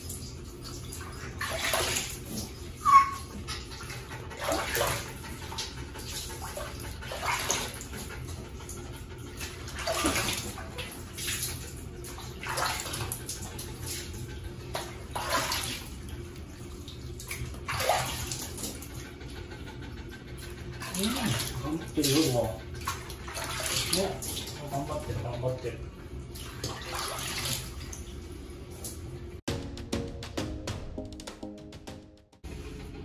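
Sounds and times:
hand shower water running: 0.0 - 29.3
water splashing: 0.6 - 8.2, 9.4 - 19.1, 20.8 - 25.4, 26.2 - 28.3.

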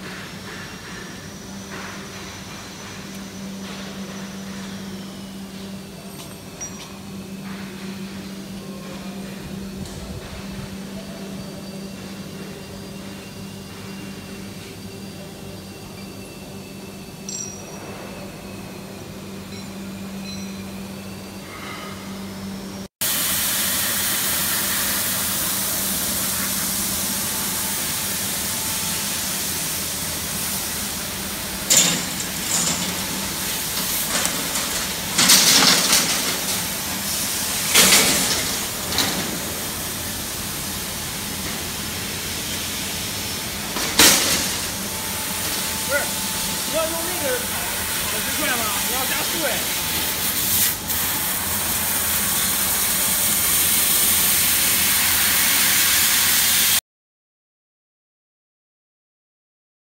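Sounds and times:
laser cutter hiss: 23.0 - 56.8
machine low hum: 23.9 - 55.0.

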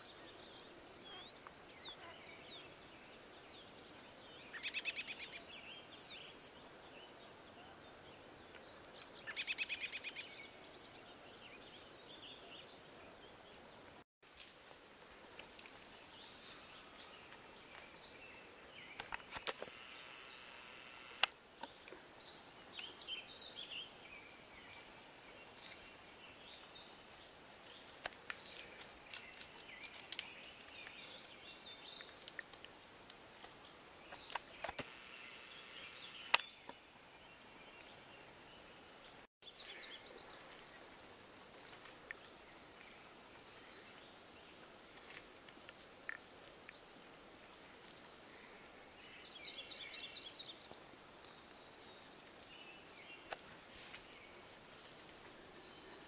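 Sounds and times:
songbirds chirping: 0.0 - 56.0
sharp clicks: 19.0 - 21.4, 34.1 - 36.5.

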